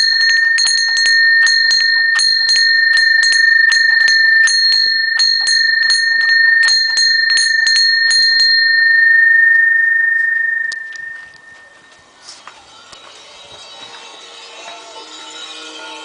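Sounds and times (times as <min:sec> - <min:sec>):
small bell ringing: 0:00.0 - 0:12.0.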